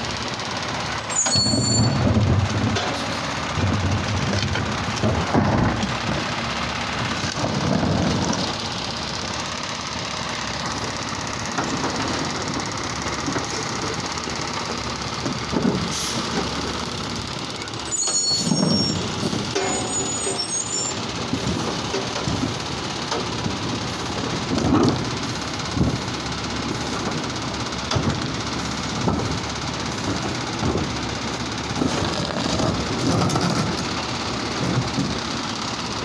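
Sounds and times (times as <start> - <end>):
garbage truck engine surging: 0.0 - 36.0
high squeals: 1.0 - 2.0, 17.8 - 21.0
hydraulic arm working: 11.5 - 35.2.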